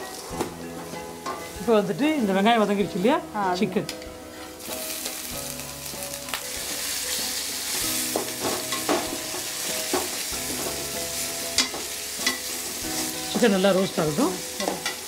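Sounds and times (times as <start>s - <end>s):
chicken sizzling in oil: 4.3s - 15.0s.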